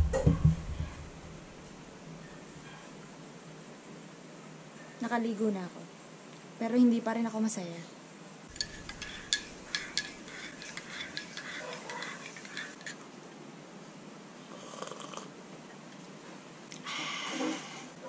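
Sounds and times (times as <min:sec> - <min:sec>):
teaspoon clinking in ceramic mug: 0:08.5 - 0:13.0.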